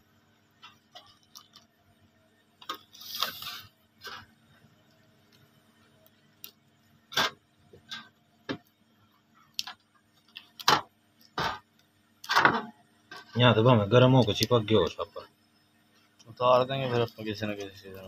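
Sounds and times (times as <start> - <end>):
plastic sheet peeling crackles: 2.8 - 3.6.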